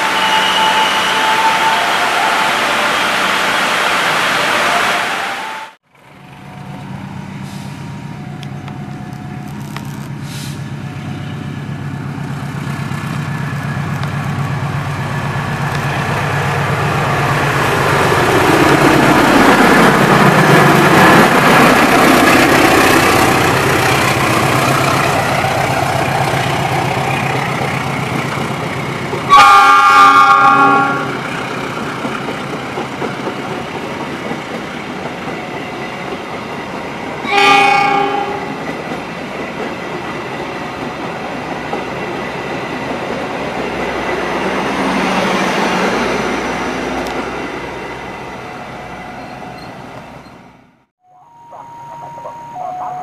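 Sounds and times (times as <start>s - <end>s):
multi-toned train horn: 0.0s - 3.3s, 29.3s - 31.2s, 37.2s - 38.6s
locomotive engine drone passing: 10.1s - 29.4s.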